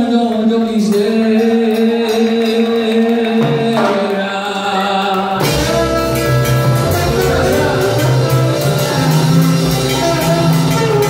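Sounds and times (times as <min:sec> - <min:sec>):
person singing: 0:00.0 - 0:11.0
live salsa band playing: 0:04.8 - 0:11.0
bass: 0:05.3 - 0:11.0
trombone: 0:05.4 - 0:11.0.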